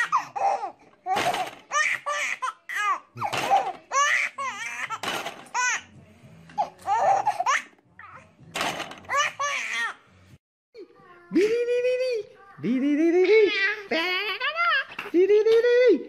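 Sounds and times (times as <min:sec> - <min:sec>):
baby giggling: 0:13.2 - 0:15.2.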